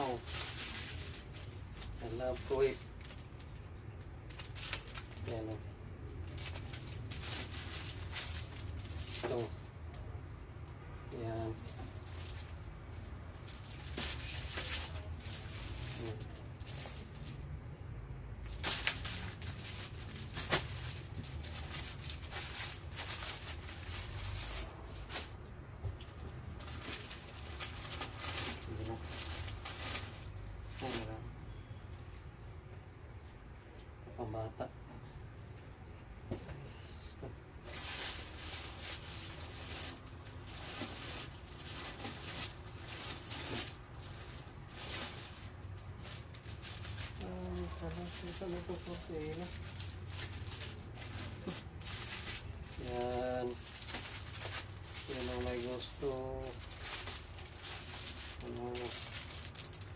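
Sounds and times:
packaging rustling and crinkling: 0:00.0 - 0:09.7, 0:11.5 - 0:17.4, 0:18.4 - 0:31.2, 0:37.6 - 0:59.9
rummaging in cardboard box: 0:37.7 - 0:59.8
sharp crackles: 0:37.7 - 0:59.9.

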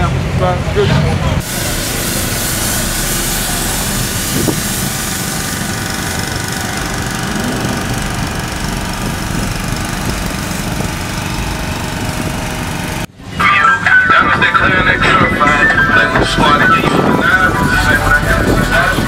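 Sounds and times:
small engine rumbling: 0:00.0 - 0:13.4
water spray hissing: 0:01.4 - 0:07.0.

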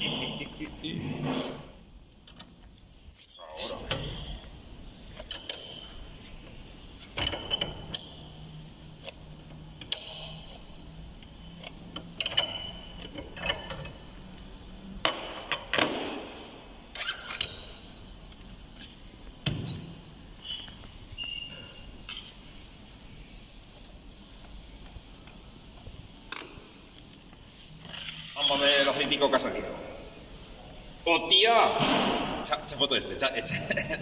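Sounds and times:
steel tools handled on metal bench: 0:05.1 - 0:06.0.

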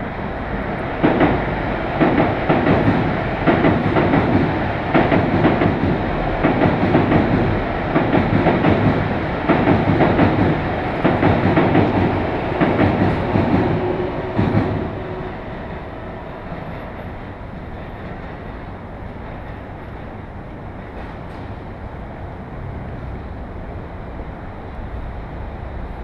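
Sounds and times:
train wheels clattering over rail joints: 0:01.0 - 0:15.2.

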